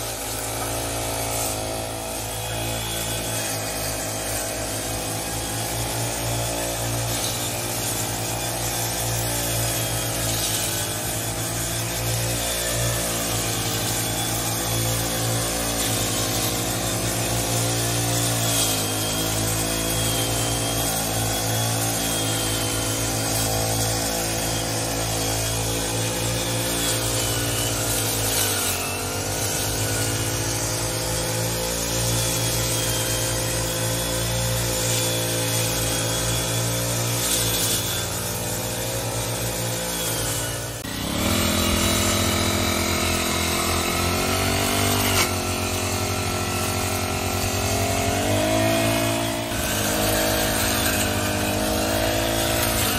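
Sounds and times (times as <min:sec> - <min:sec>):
brush cutters cutting grass: 0:00.0 - 0:52.9.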